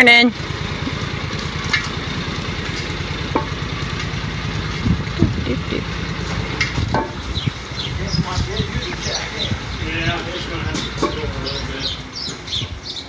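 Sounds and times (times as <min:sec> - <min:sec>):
vehicle engine idling: 0:00.0 - 0:13.0
low knocks: 0:06.3 - 0:07.6.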